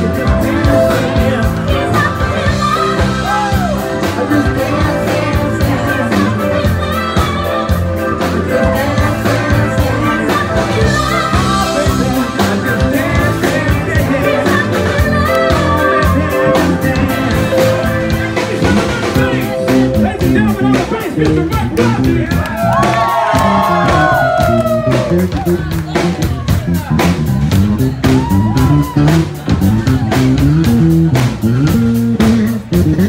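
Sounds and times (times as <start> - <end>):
person singing: 0.0 - 26.5
rock band playing: 0.0 - 33.0.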